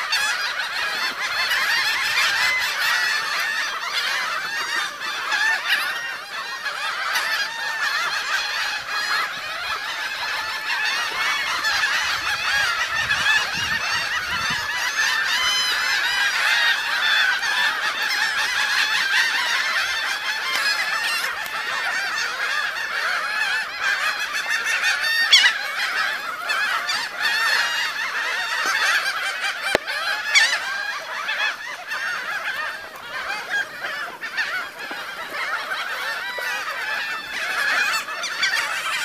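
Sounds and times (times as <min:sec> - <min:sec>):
gulls calling: 0:00.0 - 0:39.0.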